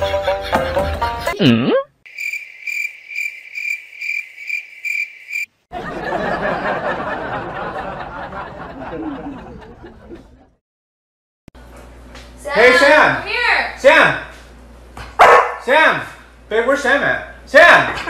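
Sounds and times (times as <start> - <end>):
cricket chirping: 2.1 - 5.6.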